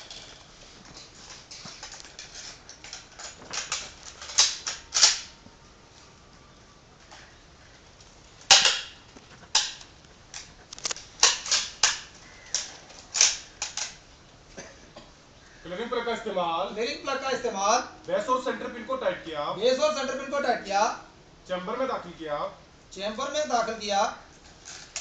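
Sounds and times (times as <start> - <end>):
rifle metallic clicks: 2.7 - 5.4.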